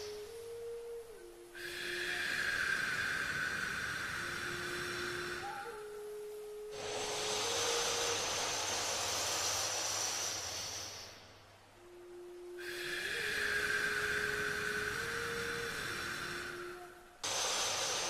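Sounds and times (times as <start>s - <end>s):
soft sustained tones: 0.0s - 18.0s
inhale through the nose: 1.6s - 5.7s, 6.7s - 11.3s, 12.6s - 18.0s
exhale through the nose: 1.6s - 5.8s, 6.7s - 11.4s, 12.6s - 18.0s.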